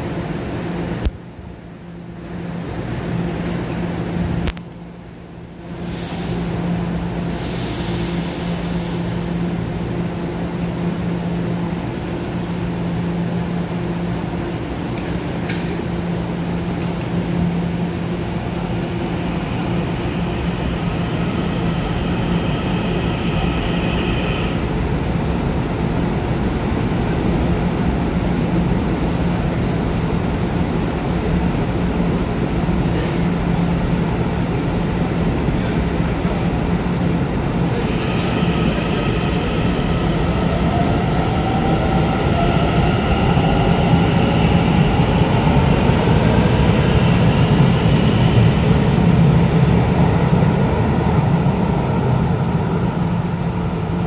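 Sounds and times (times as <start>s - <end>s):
train electrical hum: 0.0s - 54.0s
train pulling away: 5.7s - 10.0s, 16.8s - 28.8s, 34.2s - 54.0s
steady high tone: 18.4s - 25.6s, 37.6s - 48.6s.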